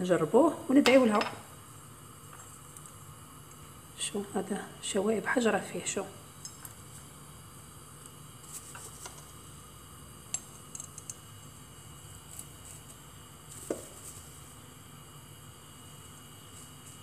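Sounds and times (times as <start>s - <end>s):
steady low hum: 0.0s - 17.0s
dried petals rustling: 8.4s - 9.5s, 11.4s - 17.0s.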